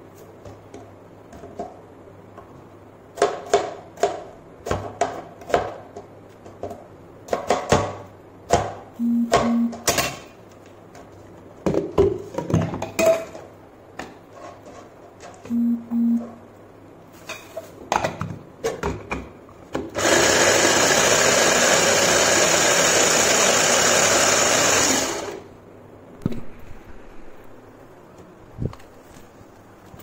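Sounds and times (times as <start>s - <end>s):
electric food chopper running: 20.0s - 25.5s.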